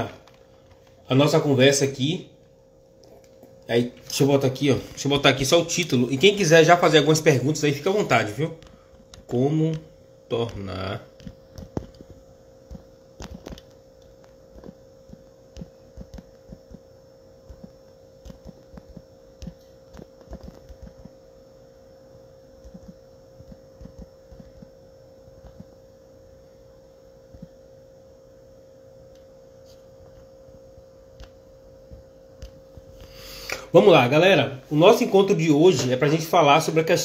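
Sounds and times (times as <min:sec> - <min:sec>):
faint steady hum: 0:00.0 - 0:37.0
fingers tapping on touchscreen: 0:14.5 - 0:16.8.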